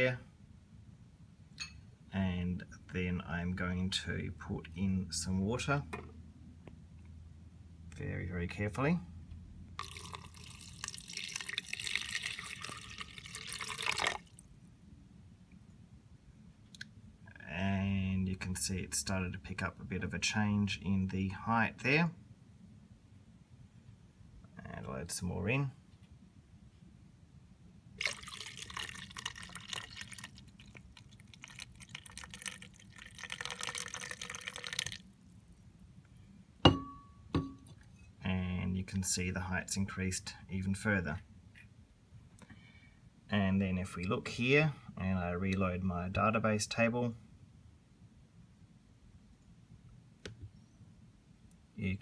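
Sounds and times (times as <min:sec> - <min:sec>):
water trickling into plastic bucket: 0:09.8 - 0:14.4, 0:28.0 - 0:35.1
sharp ringing knocks: 0:36.7 - 0:37.7.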